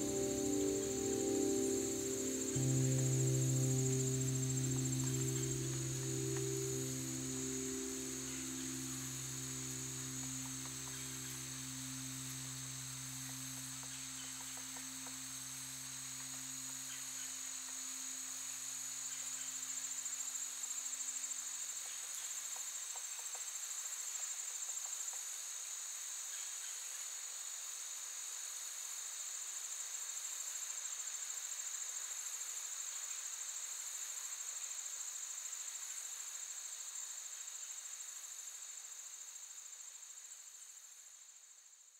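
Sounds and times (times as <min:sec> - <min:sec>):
low hum: 0:00.0 - 0:19.0
insects trilling: 0:00.0 - 0:25.5.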